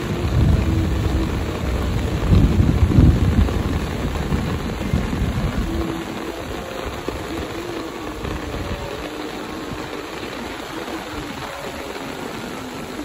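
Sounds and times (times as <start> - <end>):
low rumble: 0.0 - 7.6
heavy rain hissing: 0.0 - 13.0.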